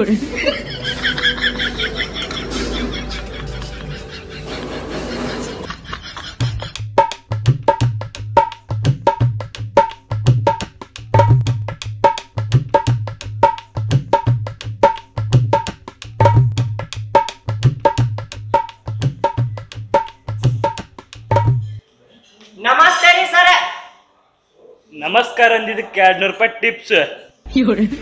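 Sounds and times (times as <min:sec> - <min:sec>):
music with percussion beat: 0:06.2 - 0:21.8
deep drum: 0:07.0 - 0:21.8.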